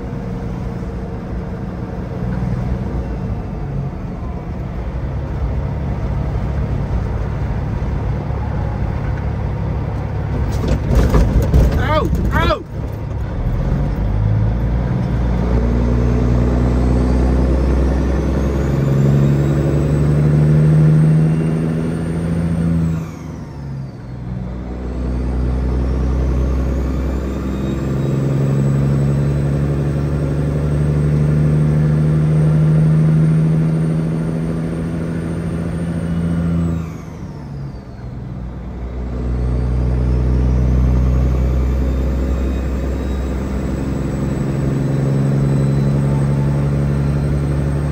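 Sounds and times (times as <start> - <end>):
truck diesel engine under load: 0.0 - 47.9
turbo whine: 33.4 - 47.9.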